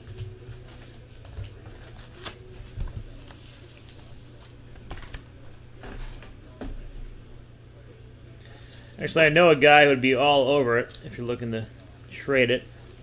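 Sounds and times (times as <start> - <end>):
cards rustling: 0.1 - 5.3.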